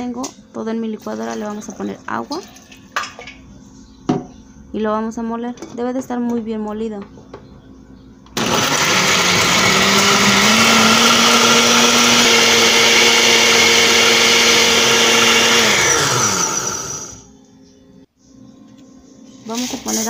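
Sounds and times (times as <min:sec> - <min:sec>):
blender grinding: 0:08.4 - 0:17.2.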